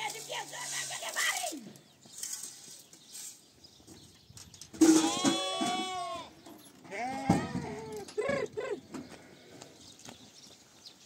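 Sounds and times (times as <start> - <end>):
livestock bleating: 4.8 - 8.0.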